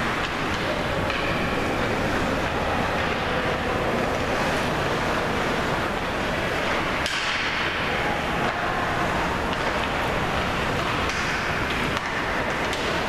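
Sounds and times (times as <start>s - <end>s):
hockey sticks and puck clacking: 0.0s - 1.6s, 6.6s - 13.0s
steady rushing noise: 0.0s - 13.0s.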